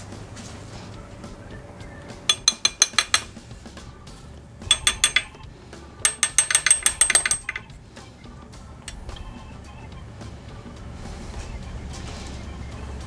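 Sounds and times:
wrench tapping metal: 0:02.3 - 0:03.4, 0:04.6 - 0:07.8, 0:08.8 - 0:09.3.

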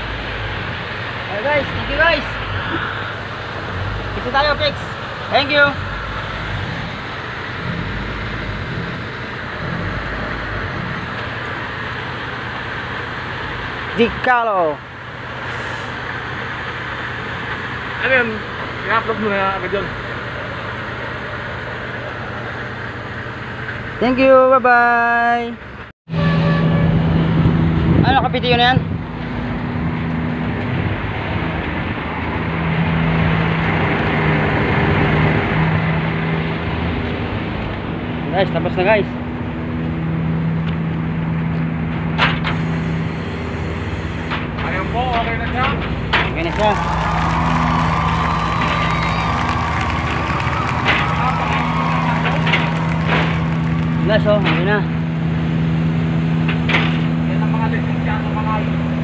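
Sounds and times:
truck engine idling: 0:00.0 - 0:24.1, 0:40.6 - 0:59.0.

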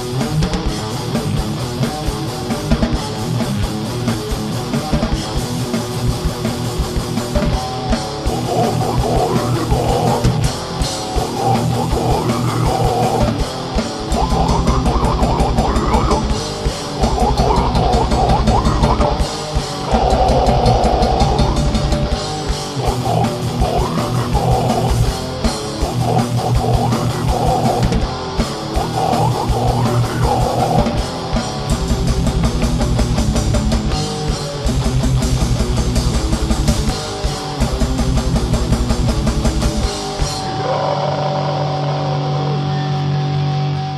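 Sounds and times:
rapid bass drum beats: 0:00.0 - 0:40.1
distorted electric guitars: 0:00.0 - 0:43.9
heavy metal band playing: 0:00.0 - 0:43.9.

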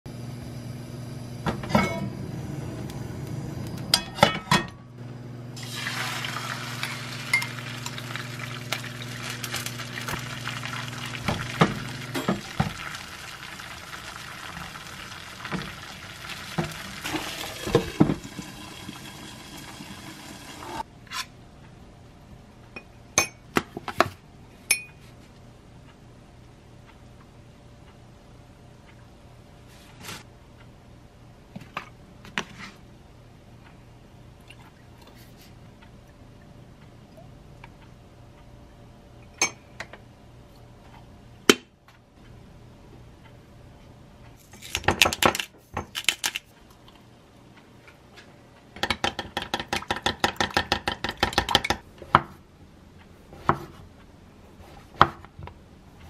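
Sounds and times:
low steady hum: 0:00.1 - 0:56.0
egg sizzling in frying pan: 0:05.6 - 0:20.8.

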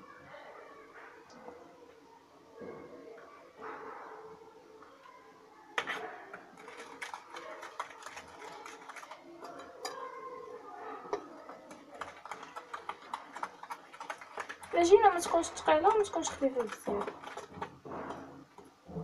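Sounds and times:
faint voices: 0:00.0 - 0:19.0
whisk tapping glass bowl: 0:11.1 - 0:18.7.

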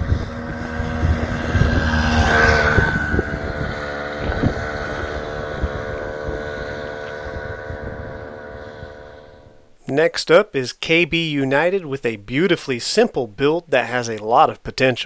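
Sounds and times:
two-stroke engine revving: 0:00.0 - 0:09.6.

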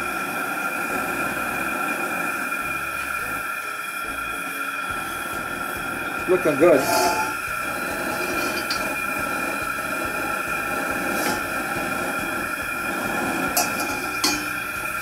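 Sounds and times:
gas burner roaring: 0:00.0 - 0:15.0
thin steady whistle: 0:00.0 - 0:15.0.

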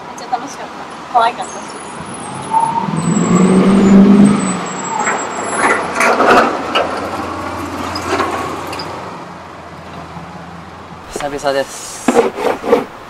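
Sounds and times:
traffic noise: 0:00.0 - 0:13.0
vehicle engine passing: 0:01.3 - 0:10.9.

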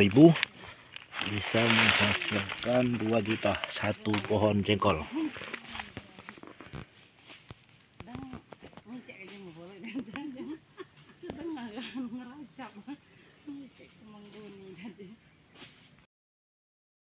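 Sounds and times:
insects droning: 0:00.0 - 0:16.1
people talking indistinctly: 0:08.0 - 0:15.2.

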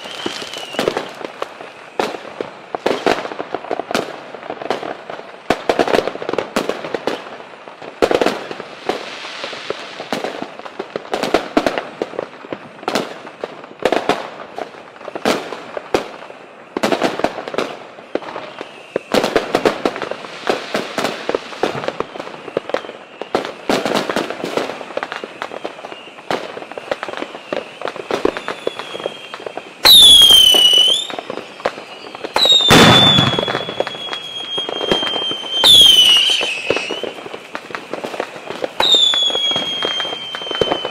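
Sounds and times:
whistling rockets: 0:00.0 - 0:03.3, 0:15.1 - 0:40.9
fireworks bangs and crackling: 0:00.0 - 0:40.9.

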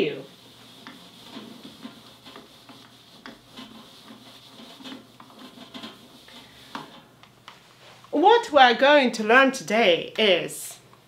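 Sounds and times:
eraser rubbing on whiteboard: 0:00.1 - 0:06.9.

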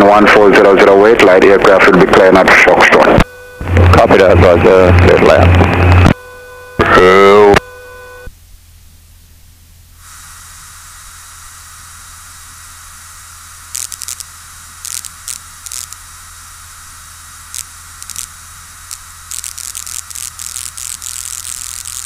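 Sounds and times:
radio crackles: 0:00.0 - 0:08.3, 0:13.6 - 0:22.0
radio static hiss: 0:00.0 - 0:08.3, 0:10.0 - 0:22.0
low hum: 0:00.1 - 0:22.0.

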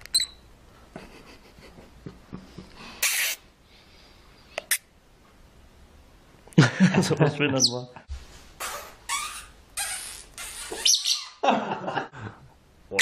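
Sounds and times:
short sharp hiss: 0:03.0 - 0:03.5.

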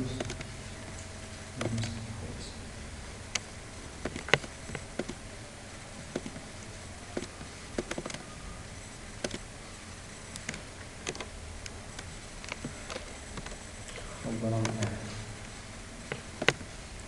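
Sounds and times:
low background hum: 0:00.0 - 0:17.0
mouse and keyboard clicks: 0:00.1 - 0:00.5, 0:03.3 - 0:05.2, 0:06.1 - 0:06.4, 0:07.2 - 0:08.3, 0:09.2 - 0:09.5, 0:10.3 - 0:14.0, 0:14.6 - 0:15.0, 0:16.1 - 0:16.7.

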